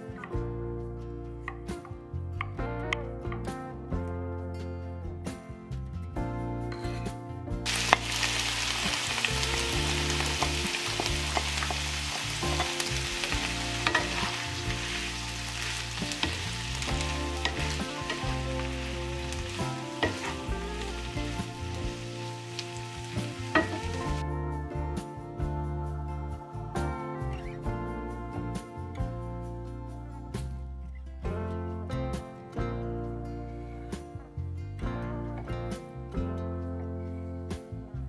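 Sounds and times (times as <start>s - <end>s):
vegetables sizzling in a pan: 7.7s - 24.2s.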